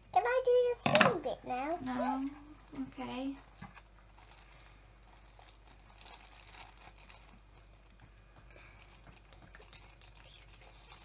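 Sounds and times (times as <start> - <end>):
paper packet crinkling: 1.8 - 8.0, 8.6 - 11.0.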